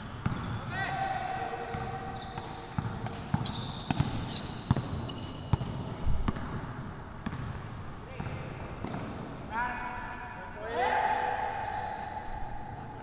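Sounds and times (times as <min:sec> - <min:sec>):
sneakers squeaking on floor: 0:00.0 - 0:00.8, 0:01.6 - 0:06.6, 0:07.2 - 0:09.4, 0:11.5 - 0:13.0
basketball bouncing: 0:00.1 - 0:00.6, 0:01.7 - 0:09.2.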